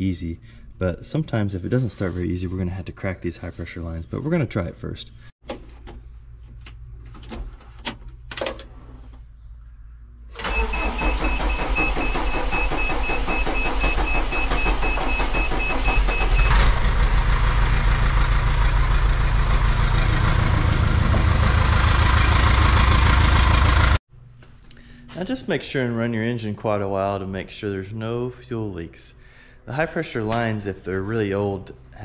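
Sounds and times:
diesel engine cranking and starting: 0:10.3 - 0:24.0.

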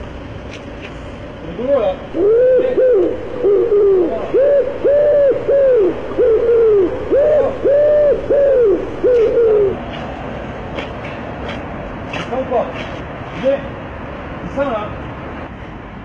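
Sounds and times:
pigeon cooing: 0:02.1 - 0:10.2.

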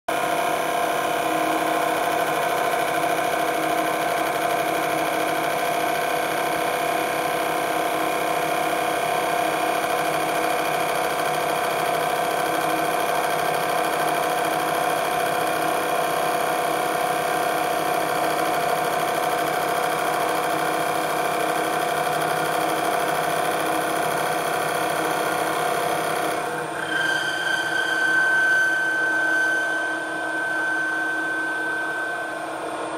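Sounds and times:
lathe spindle whine: 0:00.2 - 0:32.9
lathe cutter cutting metal: 0:25.2 - 0:32.9.

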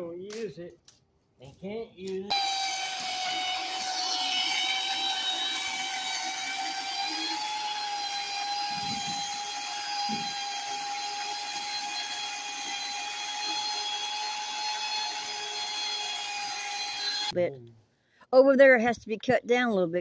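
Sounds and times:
electric chainsaw whining: 0:02.3 - 0:17.4.

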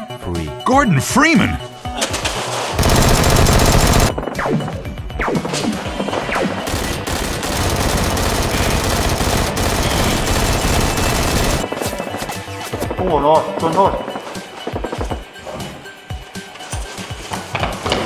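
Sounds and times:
background music: 0:00.0 - 0:18.0
rapid automatic gunfire: 0:02.8 - 0:04.2, 0:06.1 - 0:12.3.

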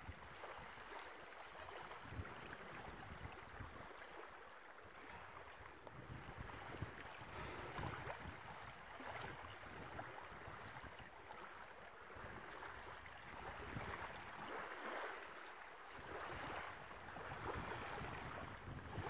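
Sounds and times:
small waves washing onto shore: 0:00.0 - 0:19.0
wind on microphone: 0:01.7 - 0:04.1, 0:05.1 - 0:11.1, 0:12.2 - 0:15.1, 0:15.9 - 0:19.0.

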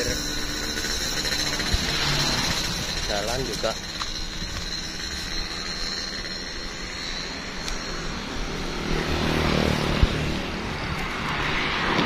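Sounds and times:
background traffic: 0:00.0 - 0:12.0
vehicle passing: 0:07.9 - 0:12.0.

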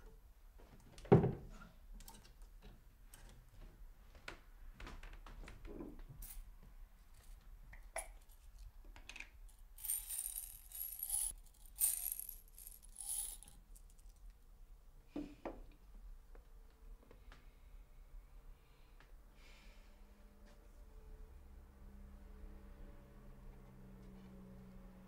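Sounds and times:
light jingling rattle: 0:09.8 - 0:13.6.

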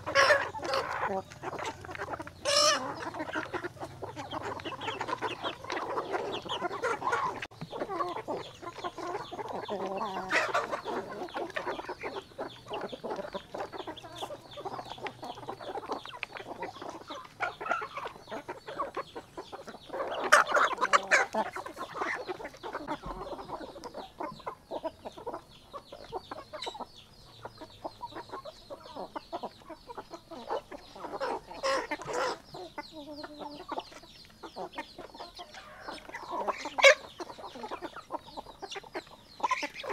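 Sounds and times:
chickens clucking: 0:00.0 - 0:39.9
loud chicken calls: 0:00.0 - 0:39.9.

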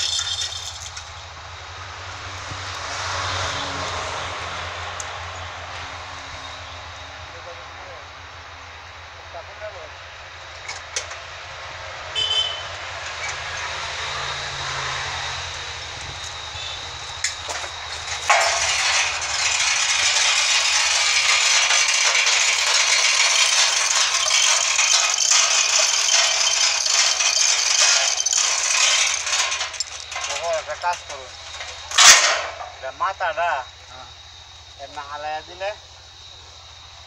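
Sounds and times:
heavy steel chains rattling: 0:00.0 - 0:01.4, 0:12.1 - 0:33.4.

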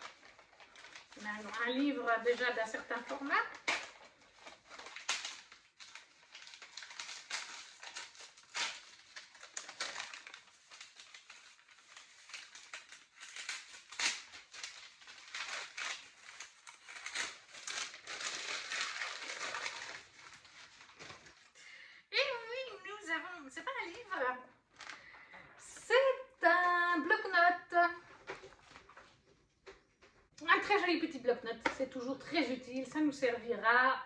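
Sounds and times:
wrapping paper tearing and crinkling: 0:00.0 - 0:21.6, 0:23.6 - 0:25.2.

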